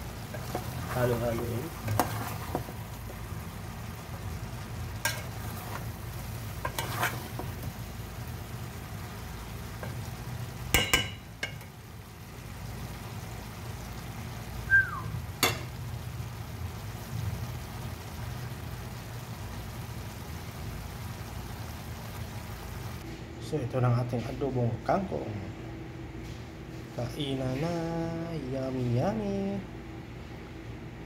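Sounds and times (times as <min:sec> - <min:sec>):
soft sizzle: 0:00.0 - 0:31.0
steady low hum: 0:00.0 - 0:31.0
spoon stirring food in pot: 0:00.2 - 0:03.2, 0:05.0 - 0:05.9, 0:06.6 - 0:07.8
spoon clinking against pot: 0:10.8 - 0:11.7.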